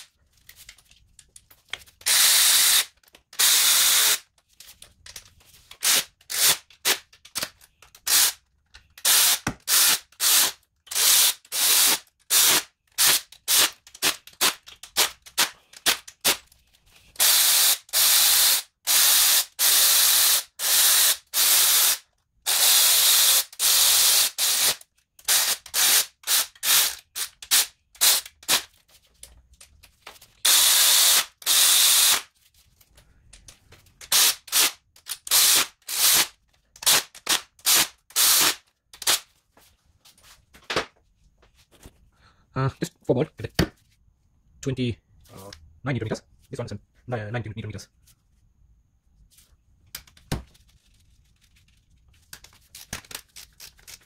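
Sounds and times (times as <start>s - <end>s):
electric ratchet whirring: 2.0s - 4.2s, 30.4s - 32.2s.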